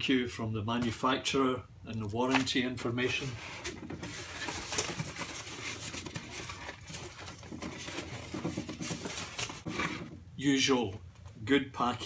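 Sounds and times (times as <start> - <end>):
rustling and scraping in cardboard box: 3.1 - 10.2.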